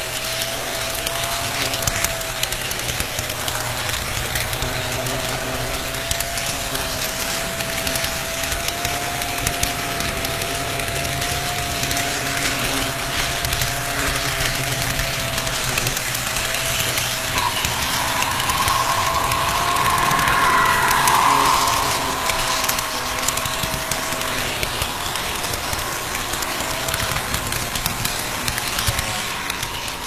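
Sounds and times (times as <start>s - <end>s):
model train motor whine: 0.0s - 17.4s.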